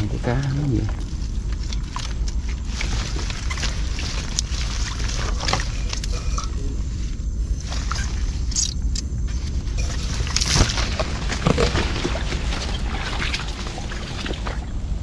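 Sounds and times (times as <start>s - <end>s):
crackles and small splashes: 0.0s - 6.6s, 7.4s - 15.0s
plant stems and leaves rustling: 0.0s - 15.0s
steady low rumble: 0.0s - 15.0s
water sloshing: 9.4s - 15.0s.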